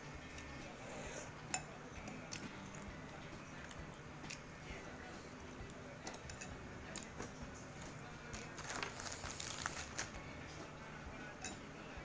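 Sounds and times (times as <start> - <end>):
metal spoon clinking on bowl: 6.0 - 7.1, 11.3 - 11.7.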